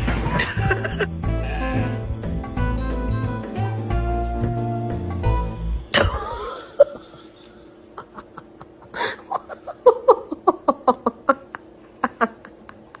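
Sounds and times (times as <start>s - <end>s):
person giggling: 0.3s - 1.1s, 5.9s - 13.0s.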